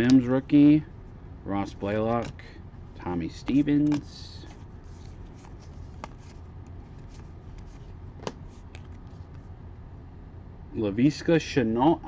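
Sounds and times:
trading cards rustling: 0:01.8 - 0:02.4, 0:03.2 - 0:09.4.

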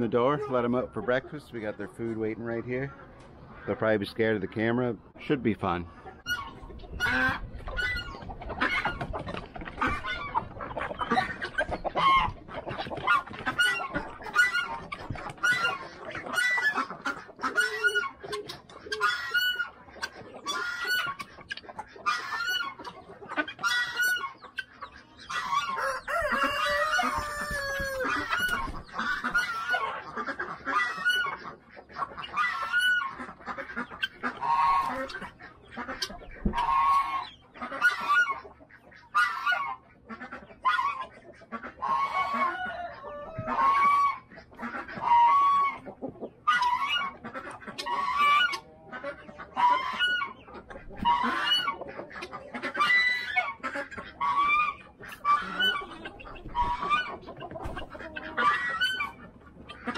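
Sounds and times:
chickens clucking and squawking: 0:00.0 - 0:59.9
rooster crowing: 0:25.8 - 0:28.0.

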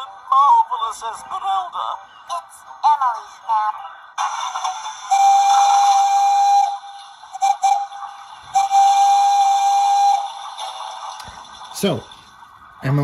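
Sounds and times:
steam whistle from small speaker: 0:04.7 - 0:11.0.

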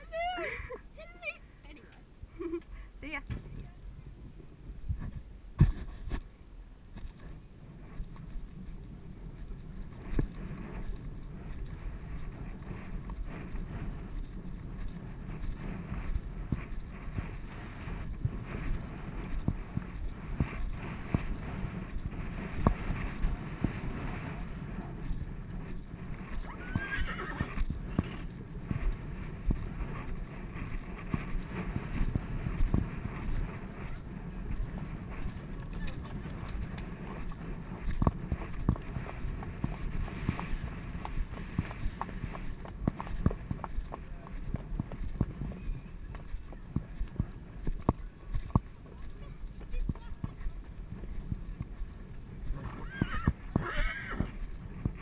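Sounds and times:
horse hooves thudding on grass: 0:06.9 - 0:55.0
horse whinny: 0:26.5 - 0:27.6, 0:52.6 - 0:54.4.

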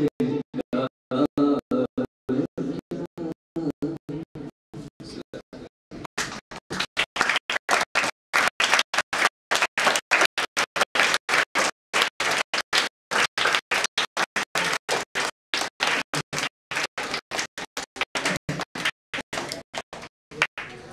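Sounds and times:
children applauding: 0:06.2 - 0:20.9.

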